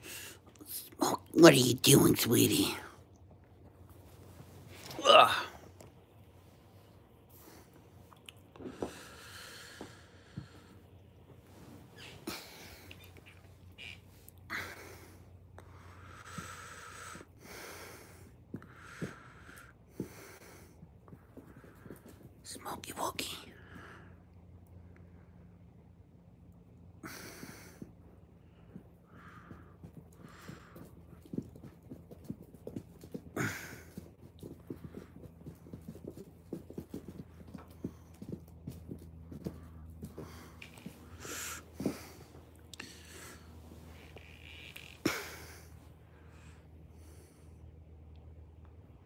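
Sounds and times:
thumps and taps on carpet: 21.0s - 22.4s, 28.6s - 44.3s.

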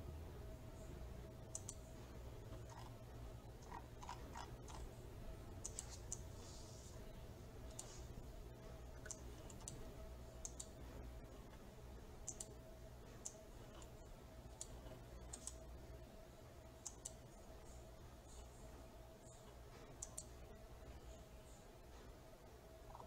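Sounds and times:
faint electrical hum: 0.0s - 23.0s
computer mouse clicking: 1.5s - 1.8s, 2.5s - 2.9s, 3.6s - 4.9s, 5.6s - 6.3s, 7.7s - 8.0s, 9.0s - 9.8s, 10.4s - 10.8s, 12.2s - 12.6s, 13.2s - 15.7s, 16.8s - 17.3s, 19.2s - 20.3s.

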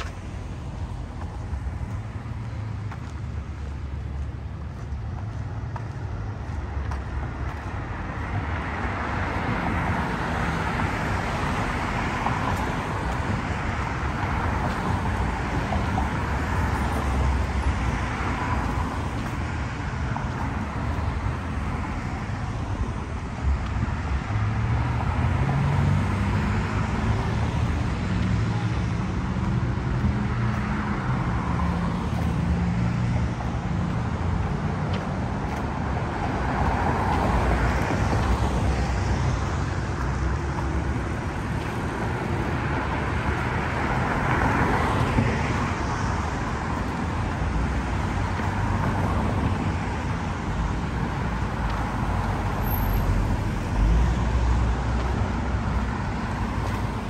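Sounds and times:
cars passing: 0.0s - 57.0s.

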